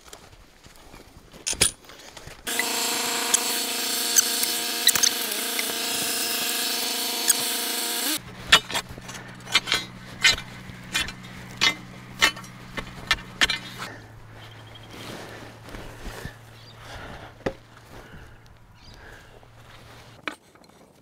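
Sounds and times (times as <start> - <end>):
steel bar ramming soil: 2.5 - 14.0
tractor engine running: 2.5 - 20.2.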